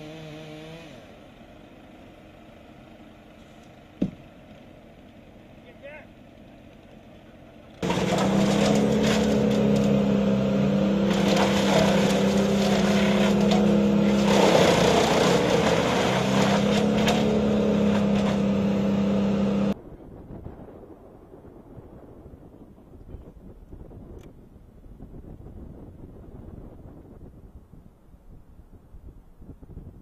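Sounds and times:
loud engine droning: 0.0 - 19.8.

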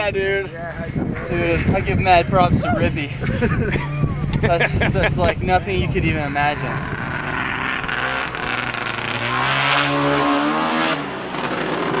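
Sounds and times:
snowmobile engine revving: 2.6 - 12.0.

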